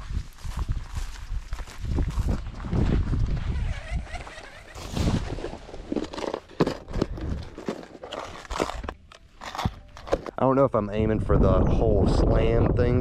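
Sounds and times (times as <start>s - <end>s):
fishing gear rustling and knocking: 2.2s - 10.4s.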